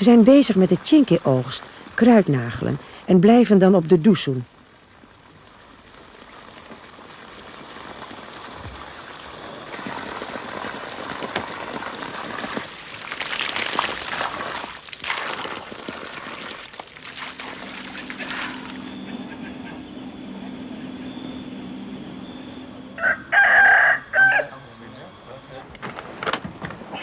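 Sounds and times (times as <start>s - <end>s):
water splashing from spout: 6.2s - 18.8s.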